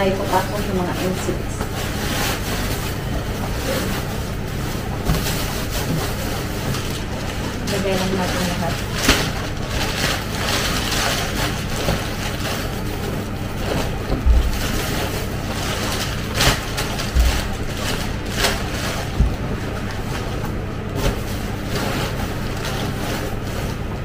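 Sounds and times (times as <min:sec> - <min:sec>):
low thumps: 0:14.0 - 0:14.8, 0:16.9 - 0:19.7.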